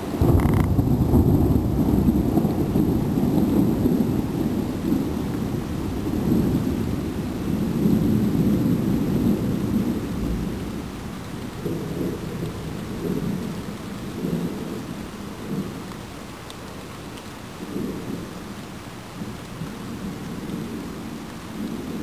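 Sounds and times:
thunder rumbling: 0.0s - 15.9s
faint rain: 0.0s - 22.0s.

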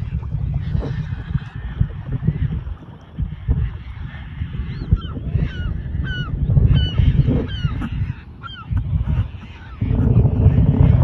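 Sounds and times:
gulls calling: 0.0s - 11.0s
wind rumble on microphone: 0.0s - 11.0s.

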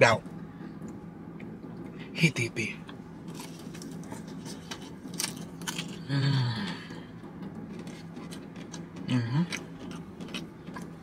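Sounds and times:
fried chicken crust crunching: 3.3s - 6.9s, 7.7s - 11.0s
person humming appreciatively: 6.0s - 6.9s.

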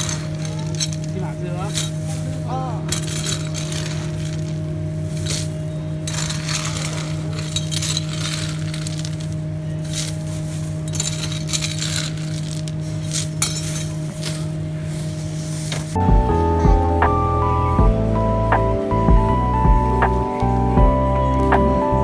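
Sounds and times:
frozen shrimp rattling on metal scoop: 0.0s - 15.4s
plastic bag crinkling: 0.0s - 15.4s
steady low hum: 0.0s - 22.0s.

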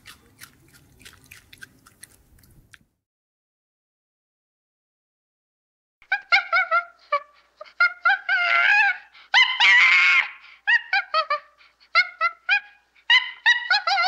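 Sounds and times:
gibbon hooting and whooping: 6.1s - 14.0s.

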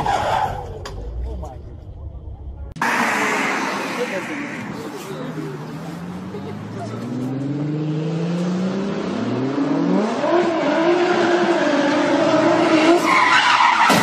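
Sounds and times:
car engine revving hard: 7.0s - 13.1s.

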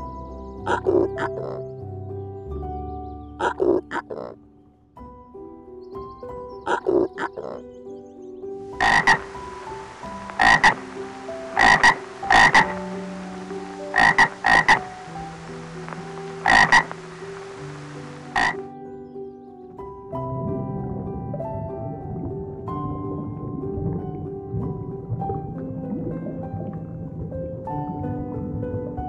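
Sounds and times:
tree frogs croaking: 0.6s - 1.7s, 3.3s - 4.4s, 6.6s - 7.7s, 8.6s - 18.7s.

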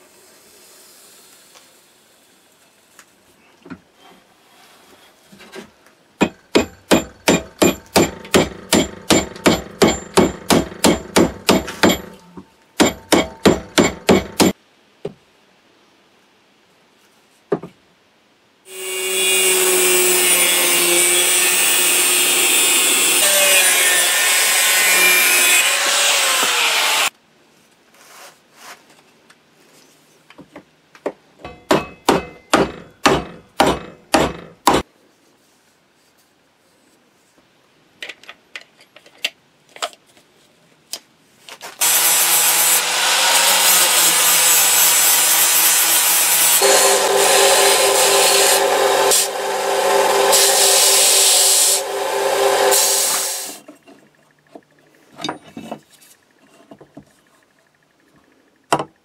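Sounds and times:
angle grinder grinding metal: 18.7s - 27.1s, 41.8s - 53.6s.

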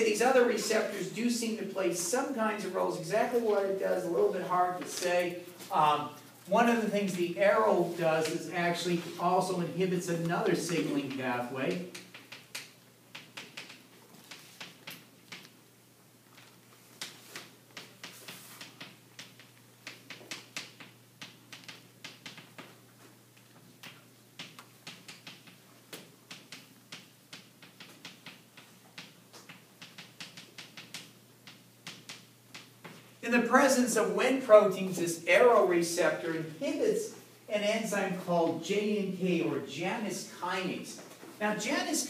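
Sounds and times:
faint room hum: 0.0s - 42.0s
chalk tapping on a blackboard: 17.0s - 22.7s, 23.8s - 33.0s.

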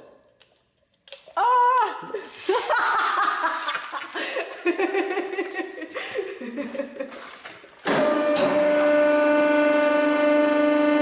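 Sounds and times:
person chuckling: 1.9s - 7.4s
hydraulic press pump whining: 7.8s - 11.0s.

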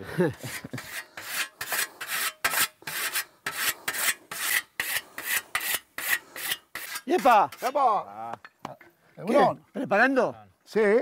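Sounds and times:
whetstone scraping scythe blade: 0.4s - 7.8s.

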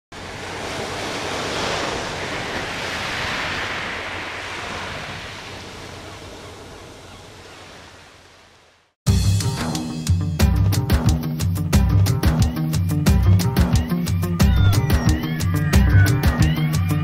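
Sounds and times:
sea surf on shingle beach: 0.1s - 9.0s.

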